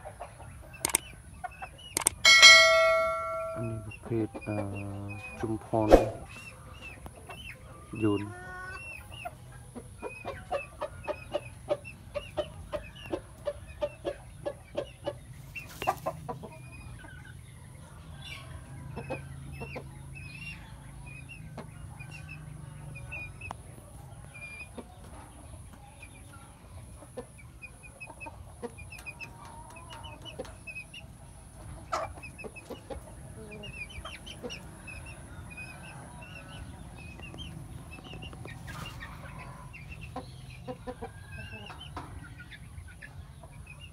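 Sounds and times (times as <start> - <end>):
rooster clucking: 0.0 - 6.4
birds chirping: 0.0 - 43.9
sharp click: 0.8 - 1.0, 2.0 - 3.7, 5.9 - 6.2.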